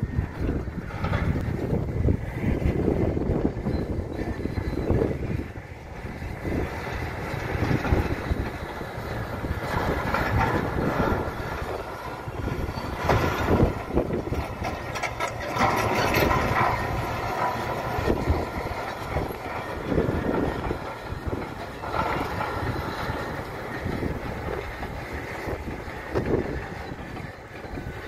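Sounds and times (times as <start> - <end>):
diesel engine under load: 0.0 - 28.0
steel tracks clanking: 0.0 - 28.0.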